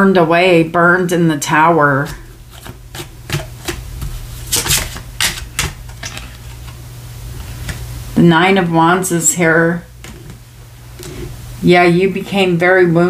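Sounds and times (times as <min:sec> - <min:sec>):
cards being shuffled: 0:02.0 - 0:06.8.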